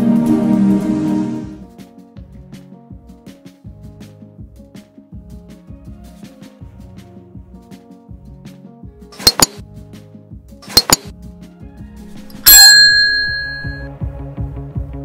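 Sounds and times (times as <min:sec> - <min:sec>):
bright bell ding: 0:12.1 - 0:13.9.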